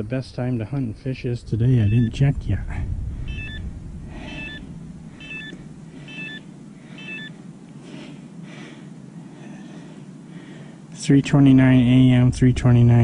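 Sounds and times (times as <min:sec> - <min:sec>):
short electronic beeps: 0:01.8 - 0:02.2, 0:03.3 - 0:03.6, 0:04.2 - 0:07.4.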